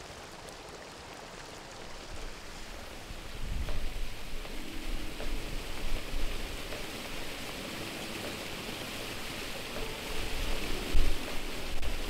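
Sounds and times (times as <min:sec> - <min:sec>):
waterfall rushing: 0:00.0 - 0:12.0
wind buffeting microphone: 0:02.9 - 0:12.0.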